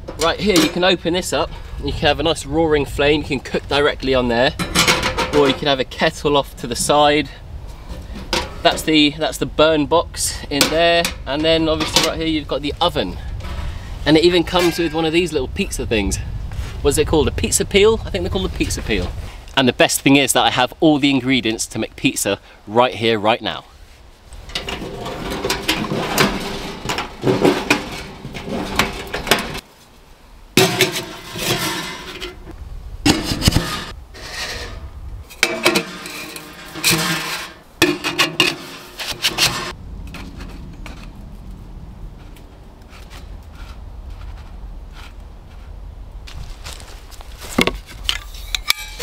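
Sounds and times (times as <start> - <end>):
metal flue pipes scraping and clanking: 0.0 - 9.4, 10.1 - 15.4, 24.3 - 29.7, 30.6 - 41.2, 42.2 - 45.8, 47.5 - 49.0.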